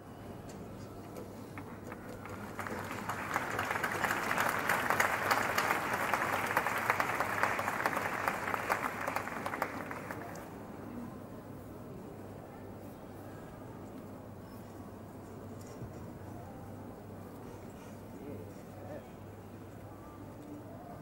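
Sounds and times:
audience applauding: 0:01.6 - 0:10.4.

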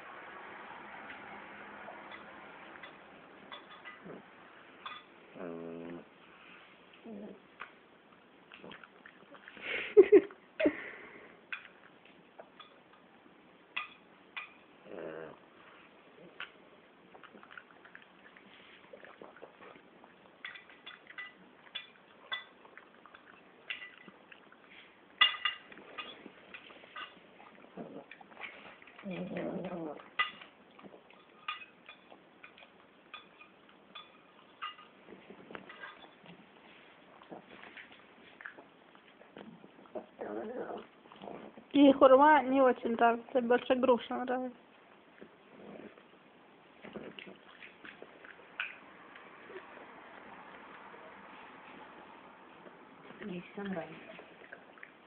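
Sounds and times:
dog chewing and lip-smacking: 0:05.9 - 0:09.6, 0:15.6 - 0:41.8, 0:44.7 - 0:55.0.

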